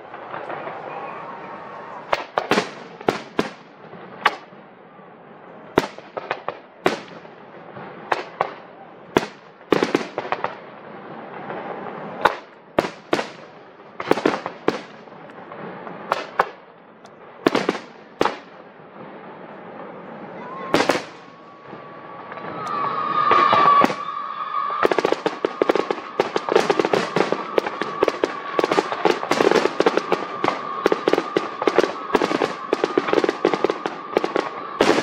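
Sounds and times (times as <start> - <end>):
fireworks bursting with echo: 0.0 - 35.0.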